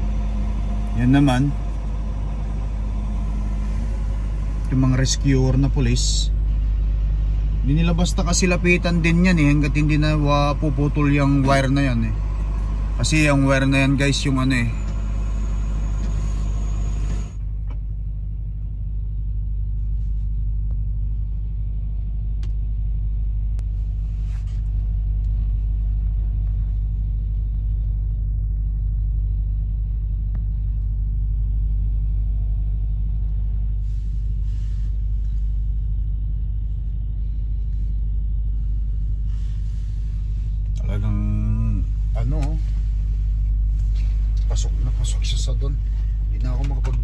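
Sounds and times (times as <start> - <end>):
diesel engine running: 0.0 - 47.0.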